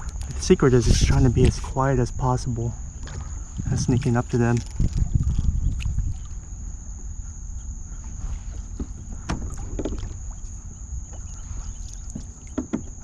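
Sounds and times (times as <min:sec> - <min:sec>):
wind rumble on microphone: 0:00.0 - 0:13.0
kayak gliding over water: 0:02.8 - 0:13.0
light knocks and drips: 0:08.5 - 0:10.5, 0:11.1 - 0:13.0.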